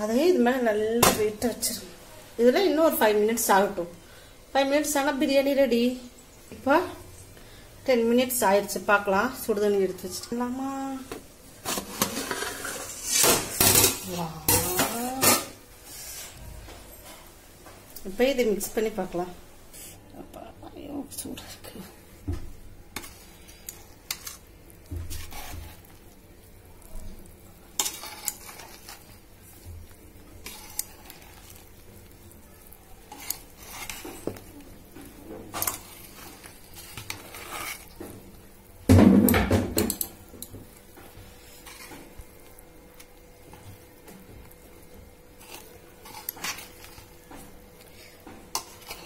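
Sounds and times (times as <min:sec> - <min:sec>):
metal spoon stirring rice in pot: 0:11.6 - 0:16.4, 0:22.9 - 0:38.6, 0:39.9 - 0:49.0.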